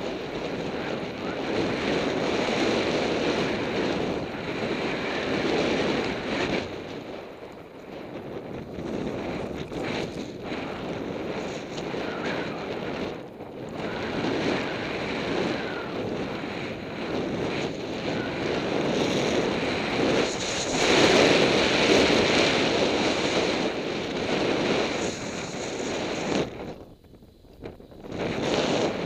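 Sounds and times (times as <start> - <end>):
wind on microphone: 0.0 - 29.0
skis hissing through snow: 18.3 - 26.7.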